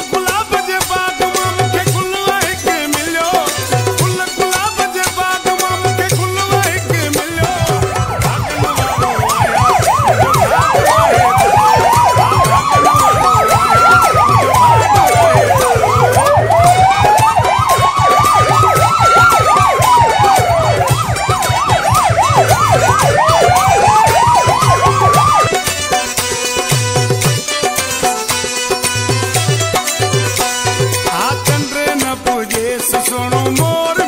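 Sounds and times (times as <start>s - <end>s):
police siren wail: 3.4s - 28.4s
police siren yelp: 5.5s - 27.6s.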